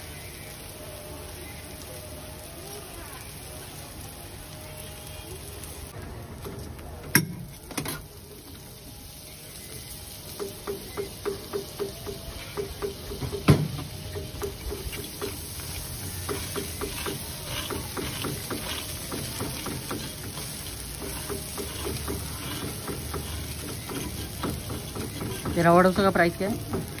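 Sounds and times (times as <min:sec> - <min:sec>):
batter frying on griddle: 0:00.0 - 0:27.0
metal spatula scraping and tapping: 0:14.1 - 0:27.0.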